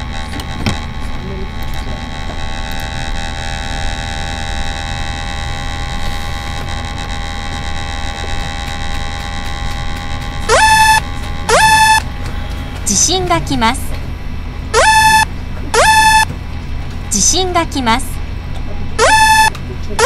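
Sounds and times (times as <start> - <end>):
electrical hum and hiss: 0.0 - 20.0
faint high whining tones: 10.5 - 12.0, 14.7 - 16.3, 19.0 - 20.0
rising warning tone: 10.5 - 12.0, 14.8 - 16.3, 19.0 - 19.6.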